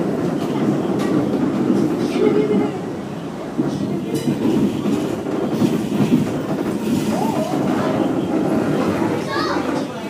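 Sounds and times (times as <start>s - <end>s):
train wheels rumbling on rails: 0.0s - 10.0s
track knocks: 3.5s - 10.0s.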